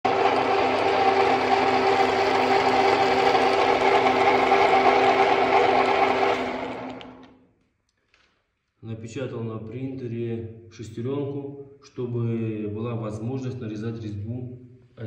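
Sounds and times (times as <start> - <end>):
lathe running with mechanical hum: 0.0 - 7.2.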